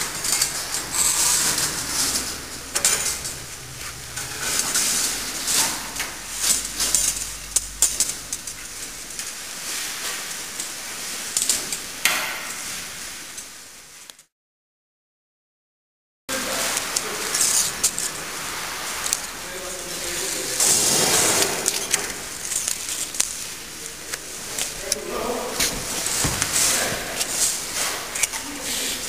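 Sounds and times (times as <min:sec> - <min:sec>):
low hum: 0:00.4 - 0:09.2.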